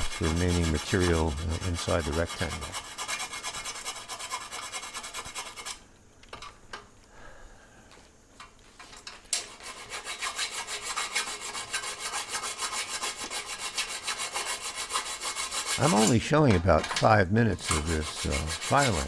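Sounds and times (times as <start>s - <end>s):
file rasping on aluminium: 0.0s - 5.8s, 9.4s - 16.3s, 17.6s - 19.0s.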